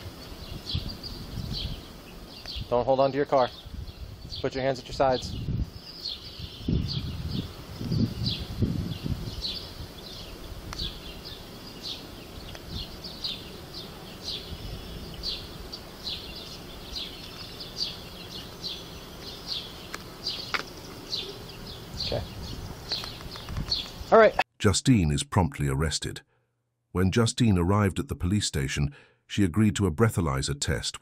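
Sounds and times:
low rumble on microphone: 0:00.0 - 0:02.7, 0:05.0 - 0:05.8, 0:06.4 - 0:11.0
bird chirping: 0:00.0 - 0:24.4.

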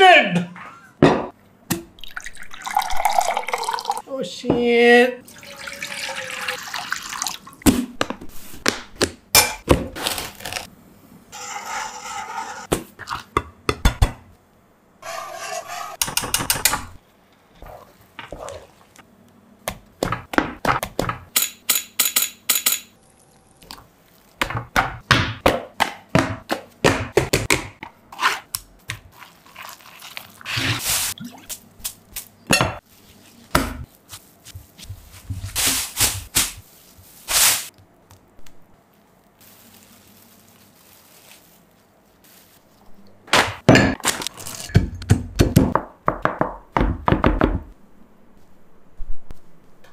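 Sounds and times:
pouring or scraping: 0:29.1 - 0:31.2, 0:39.0 - 0:43.0.

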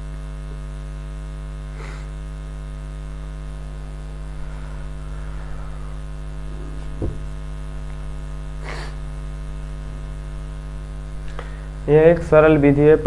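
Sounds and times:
electrical mains hum: 0:00.0 - 0:13.0
soft knock: 0:06.9 - 0:07.3.

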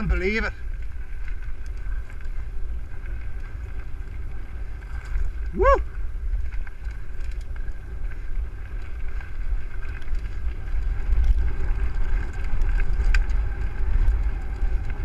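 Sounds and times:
bike clicks and rattles: 0:00.0 - 0:15.0
bike tyres rolling on gravel: 0:00.0 - 0:15.0
wind buffeting microphone: 0:00.0 - 0:15.0.

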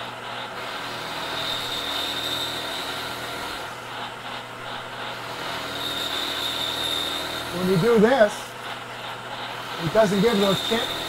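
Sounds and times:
milling machine cutting aluminium: 0:00.0 - 0:11.0.

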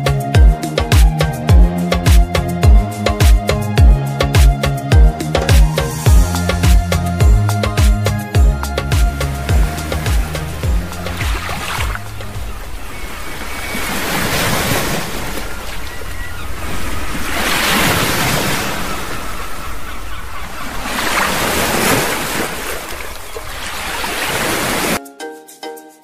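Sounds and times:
plucked-string music: 0:00.0 - 0:12.5
waves washing onto shore: 0:08.9 - 0:25.0.

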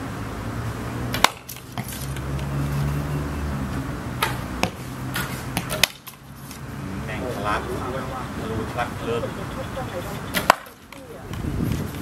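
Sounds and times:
arrows striking targets: 0:01.1 - 0:02.8, 0:04.2 - 0:06.6, 0:10.3 - 0:11.0.

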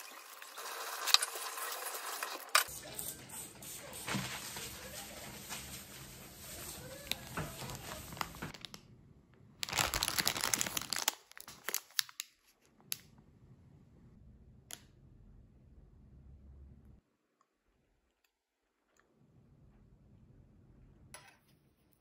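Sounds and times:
plastic packaging rustling: 0:04.1 - 0:08.8, 0:09.6 - 0:12.6.

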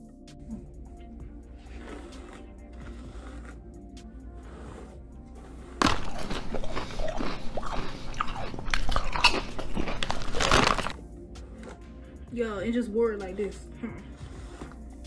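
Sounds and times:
crunching and chewing chips: 0:05.6 - 0:11.9.

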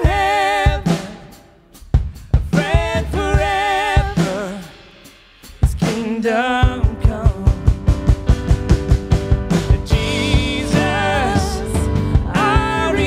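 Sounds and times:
person singing: 0:00.0 - 0:01.4, 0:02.5 - 0:04.8, 0:05.8 - 0:07.8, 0:09.5 - 0:13.0
band with drums: 0:00.0 - 0:13.0.

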